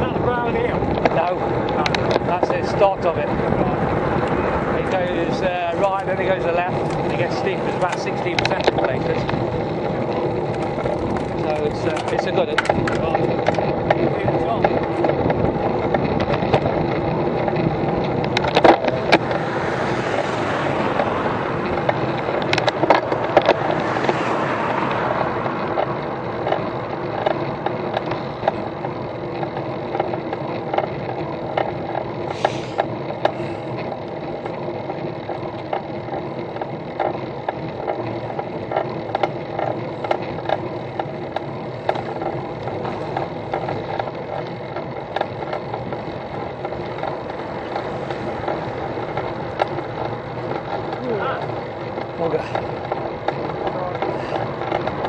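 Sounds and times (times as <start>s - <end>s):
rushing noise: 0.0s - 30.8s
bicycle tyre road noise: 0.0s - 55.0s
sharp knocks over bumps: 0.0s - 55.0s
camera mount rattling: 6.7s - 19.8s.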